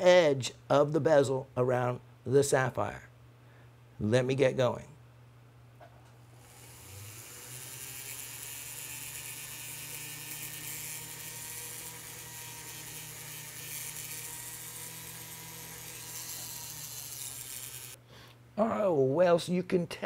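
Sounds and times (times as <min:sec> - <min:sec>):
rotary handpiece whirring: 0:06.4 - 0:18.0.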